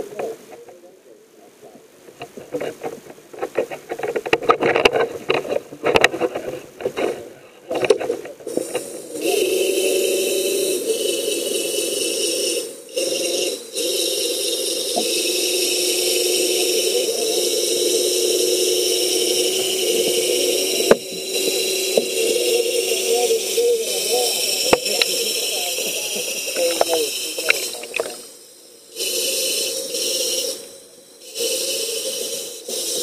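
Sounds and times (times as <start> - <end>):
electric thruster motor whine: 8.7 - 33.0.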